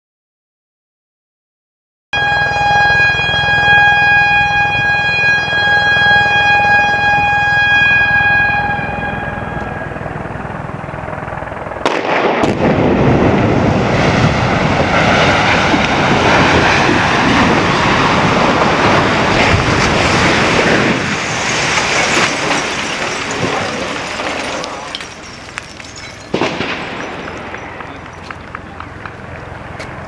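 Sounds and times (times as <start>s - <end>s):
warning siren: 2.2s - 12.0s, 12.6s - 30.0s
silo collapsing rumble: 7.1s - 29.7s
demolition charges cracking: 11.8s - 30.0s.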